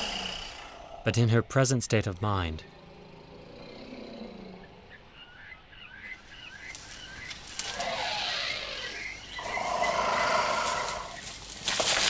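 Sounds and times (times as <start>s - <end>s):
harsh wild animal calls: 0.0s - 1.1s, 2.6s - 11.2s.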